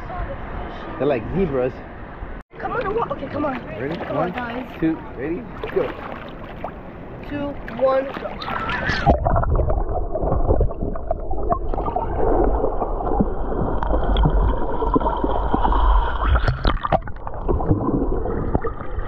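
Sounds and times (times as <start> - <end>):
underwater gurgling and bubbling: 8.6 - 19.0.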